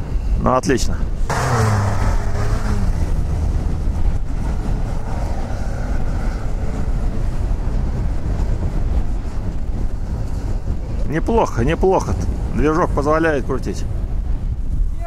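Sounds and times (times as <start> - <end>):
off-road vehicle engines running: 0.0 - 15.0
wind noise on microphone: 0.0 - 15.0.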